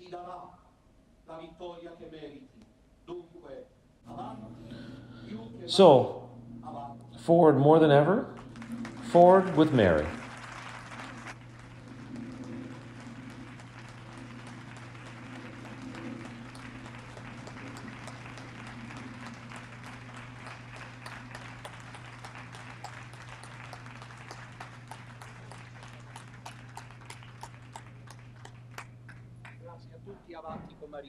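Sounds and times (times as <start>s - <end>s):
low hum: 4.0s - 30.4s
audience applauding: 8.4s - 30.0s.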